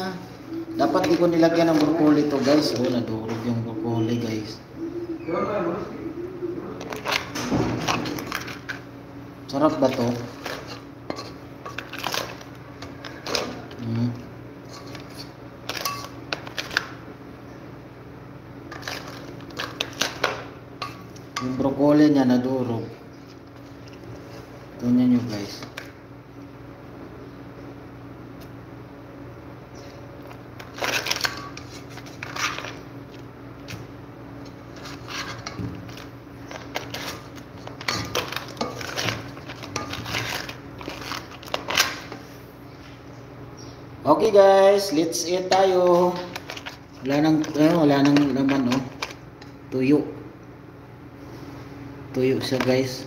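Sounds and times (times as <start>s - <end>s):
steady low hum: 0.0s - 53.0s
spatula scraping a wok: 34.7s - 35.6s.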